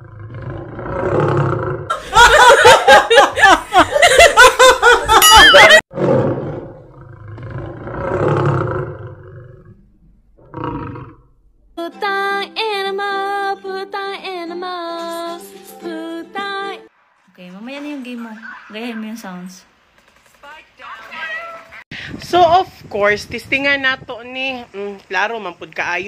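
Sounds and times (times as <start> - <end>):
man laughing loudly: 1.9 - 5.8.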